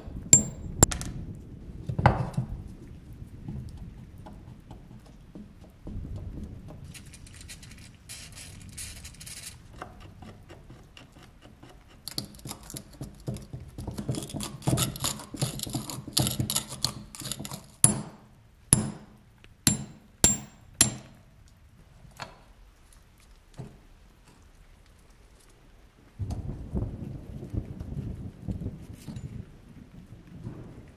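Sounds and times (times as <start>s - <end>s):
rusted metal grating and clicking: 0.4s - 0.9s, 6.9s - 19.1s, 19.7s - 21.2s
metallic hammer taps: 0.4s - 1.0s, 17.4s - 21.2s.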